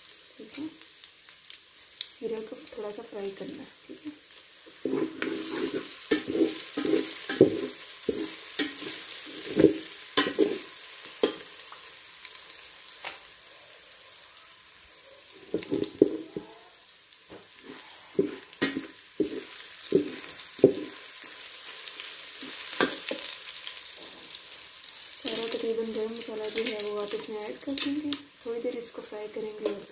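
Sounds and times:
food sizzling in a pot: 0.0 - 29.9
metal spatula scraping pot: 4.0 - 11.5.

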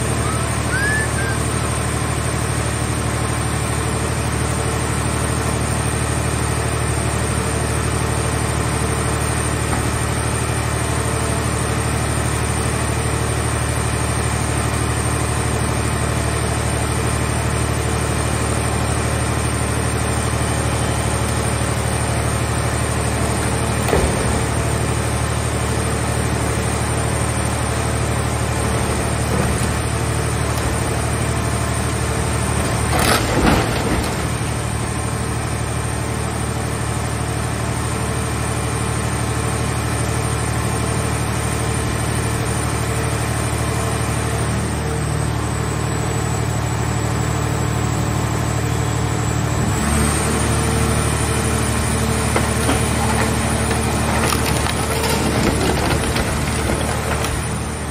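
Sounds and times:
hydraulic power unit droning: 0.0 - 57.9
metal crunching: 28.5 - 35.1, 51.7 - 57.9.

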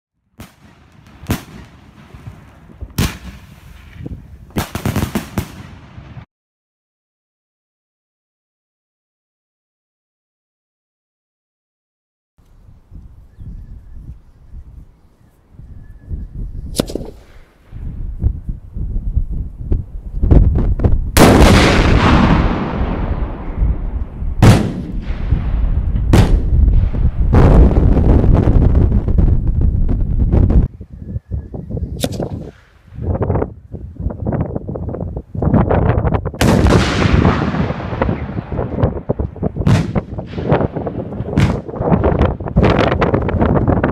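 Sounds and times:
fireworks exploding: 0.4 - 6.3, 21.1 - 30.7, 36.4 - 43.9.

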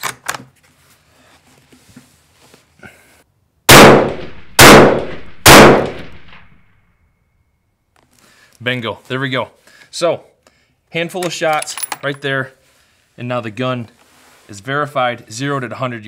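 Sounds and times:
rifle shots: 3.7 - 6.6.

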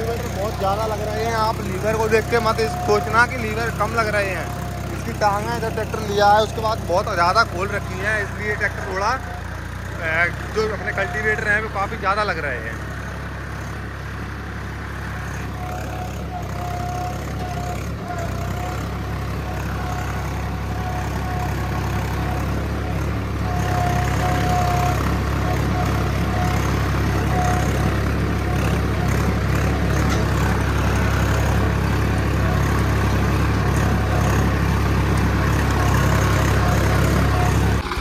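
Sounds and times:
thin whine: 0.0 - 13.8
tractor diesel engine under load: 0.0 - 38.0.

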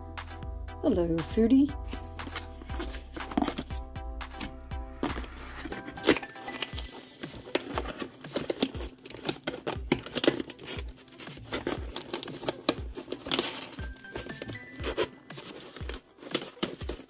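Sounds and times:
cardboard flaps rustling: 1.9 - 3.8, 4.4 - 17.0
packaging crinkling and tearing: 5.0 - 17.0.

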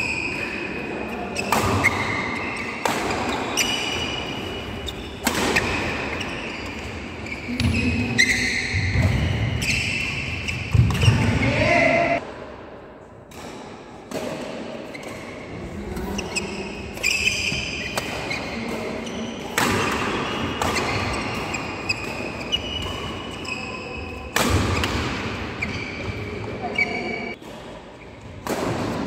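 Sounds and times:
shoes squeaking on court: 0.0 - 11.4, 16.1 - 19.6, 20.2 - 25.0, 25.6 - 27.4
rackets hitting shuttlecock: 1.4 - 11.4, 17.0 - 23.4, 24.3 - 26.6, 28.3 - 29.0.

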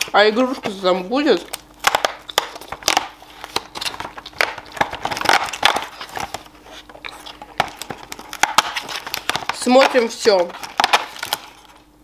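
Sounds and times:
thin cardboard crinkling: 0.0 - 11.8.

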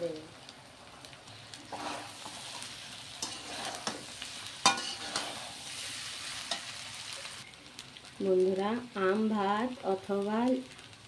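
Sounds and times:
light sizzle: 0.0 - 11.0
metal spatula scraping wok: 1.7 - 7.0
spatula clinking on pan: 4.6 - 5.3.

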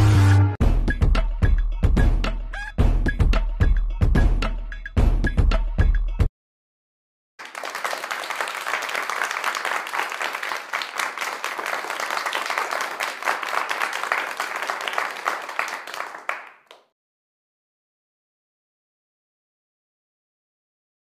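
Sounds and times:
many hands clapping: 7.4 - 17.0.

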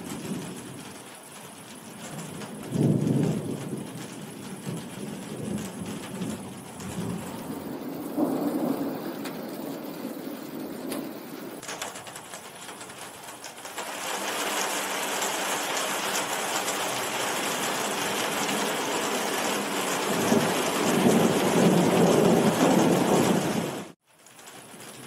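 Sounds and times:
deep thunder rumble: 0.0 - 1.0, 2.0 - 11.6, 19.9 - 24.0
heavy rain hissing: 0.0 - 24.0.

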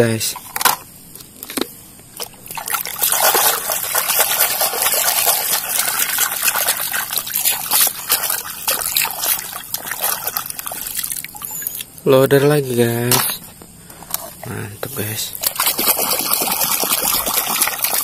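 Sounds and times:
water splashing and sloshing: 2.1 - 11.7, 15.3 - 18.0.

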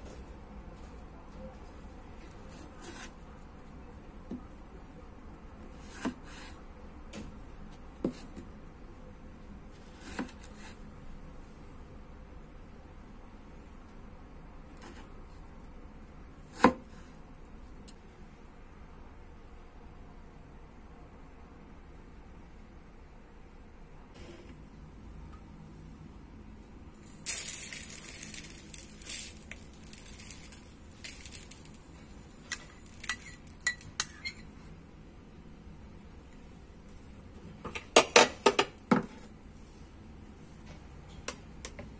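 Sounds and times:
sugar pouring hissing patter: 27.0 - 33.4.

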